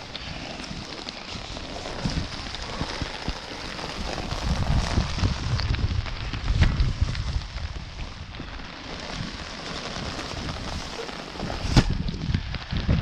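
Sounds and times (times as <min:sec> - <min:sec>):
raindrop ticks: 0:00.0 - 0:11.4
rain falling: 0:00.0 - 0:13.0
wind buffeting microphone: 0:00.0 - 0:13.0.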